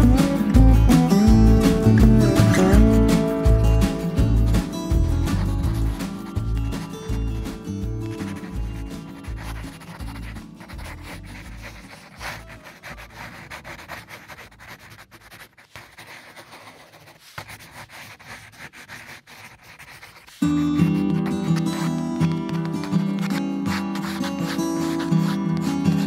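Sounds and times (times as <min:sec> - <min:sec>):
background music: 0:00.0 - 0:14.2, 0:20.4 - 0:26.0
pencil scratching on paper: 0:03.9 - 0:26.0.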